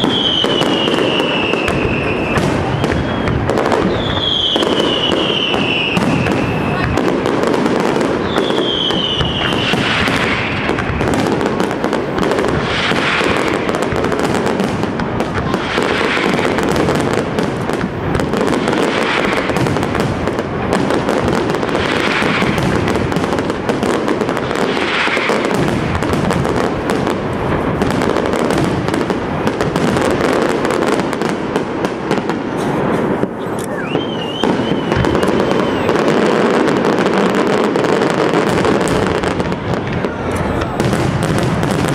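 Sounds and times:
falling firework whistle: 0:00.0 - 0:11.4, 0:12.4 - 0:14.0, 0:15.4 - 0:17.1, 0:17.7 - 0:19.9, 0:32.2 - 0:41.9
fireworks crackling and banging: 0:00.0 - 0:41.9.

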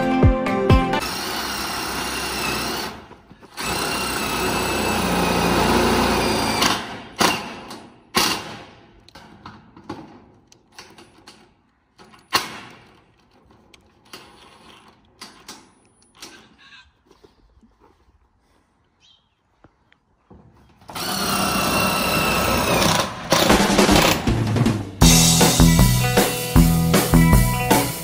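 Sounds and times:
power drill driving screws into metal: 0:01.0 - 0:09.2, 0:20.9 - 0:24.3.

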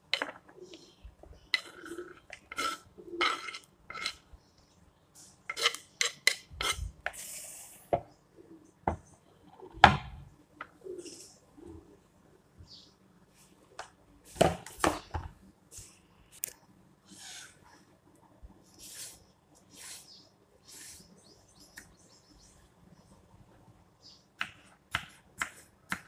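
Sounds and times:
knife scraping on chopping board: 0:01.5 - 0:04.2, 0:05.5 - 0:06.9.

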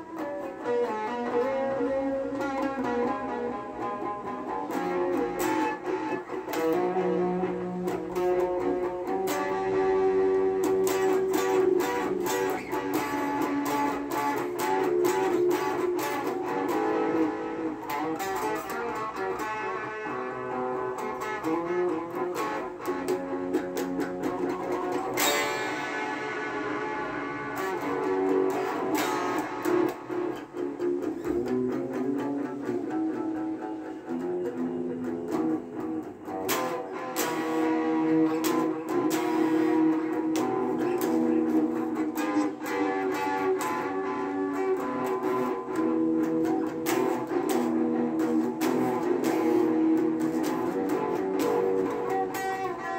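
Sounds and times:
electric guitar riffs: 0:00.0 - 0:52.9
hard-struck guitar attack: 0:00.2 - 0:52.9.

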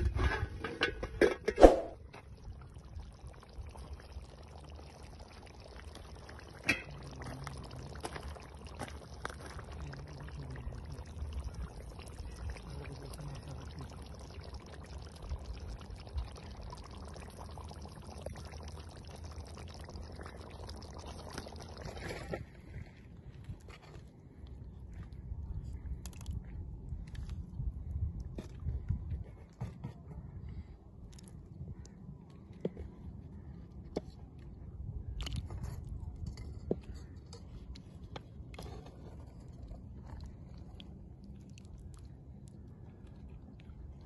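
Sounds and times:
curry bubbling in a pot: 0:01.9 - 0:23.6, 0:31.1 - 0:44.0.

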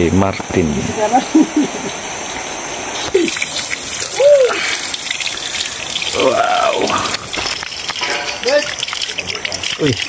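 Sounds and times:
water splashing from a pipe: 0:03.0 - 0:10.0.

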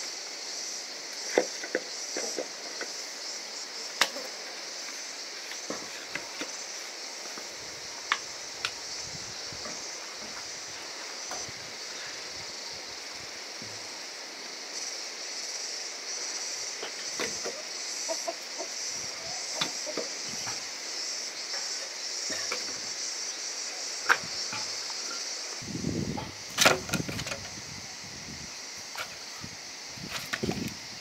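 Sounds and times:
steady high hiss: 0:00.0 - 0:31.0
chickens clucking: 0:17.4 - 0:20.6.

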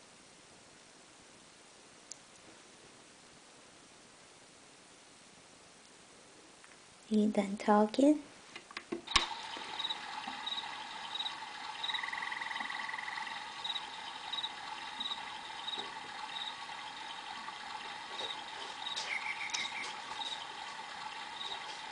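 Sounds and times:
crickets chirping: 0:09.1 - 0:21.9
rapid lower insect trill: 0:09.1 - 0:21.9.

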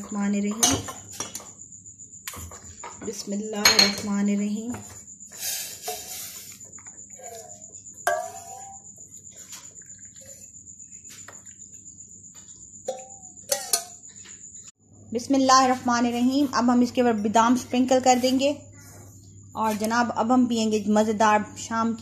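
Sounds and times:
metal clinking against glass: 0:12.8 - 0:14.0.

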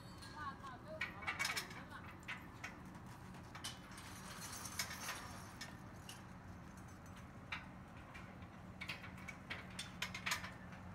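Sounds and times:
metal tubes clicking and knocking: 0:00.1 - 0:02.8, 0:06.8 - 0:10.8.

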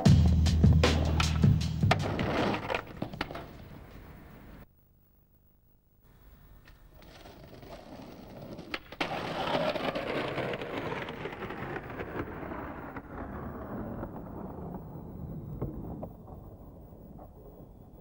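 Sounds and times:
skateboard wheels rolling on concrete: 0:00.0 - 0:04.6, 0:06.1 - 0:18.0
skateboard clacking on ground: 0:01.0 - 0:03.7, 0:06.7 - 0:12.0
skateboard grinding on stone ledge: 0:01.9 - 0:03.5, 0:07.0 - 0:11.9.

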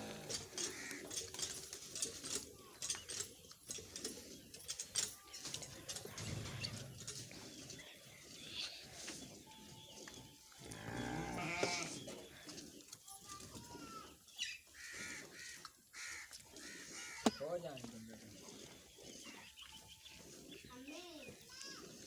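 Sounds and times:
sheep bleating: 0:10.8 - 0:12.0.

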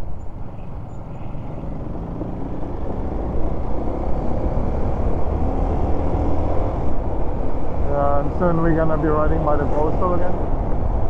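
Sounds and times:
motorcycle engine running: 0:00.3 - 0:05.4.

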